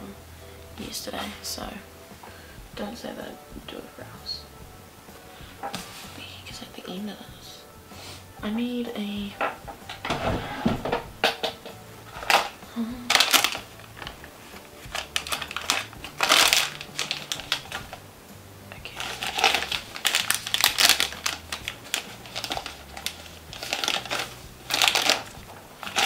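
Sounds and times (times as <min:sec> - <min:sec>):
small plastic items clicking and rattling: 0:11.3 - 0:14.3, 0:14.9 - 0:18.0, 0:18.8 - 0:26.0.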